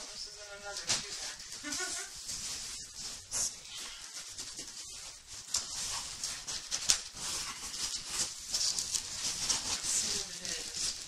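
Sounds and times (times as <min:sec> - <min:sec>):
paper packaging rustling: 0:00.0 - 0:11.0.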